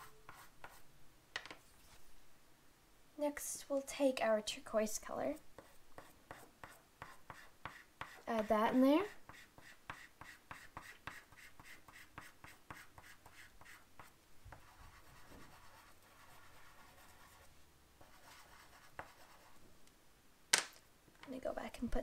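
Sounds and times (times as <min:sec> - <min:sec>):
chalk pastel scratching on paper: 0:00.0 - 0:00.8, 0:05.3 - 0:19.6.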